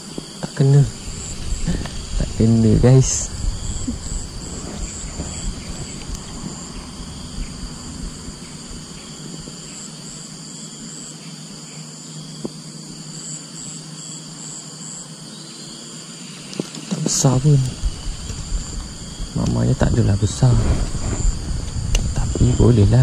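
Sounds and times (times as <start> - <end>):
insects trilling: 0.0 - 23.0
low rumble: 0.8 - 9.1, 17.4 - 23.0.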